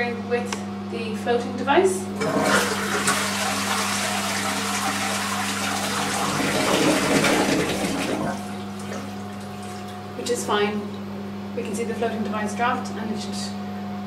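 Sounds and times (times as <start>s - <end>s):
toilet flushing: 2.2s - 10.0s.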